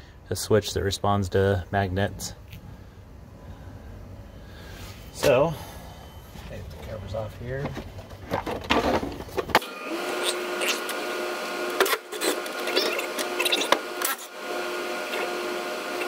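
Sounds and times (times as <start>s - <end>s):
cordless drill motor whine: 9.6s - 16.0s.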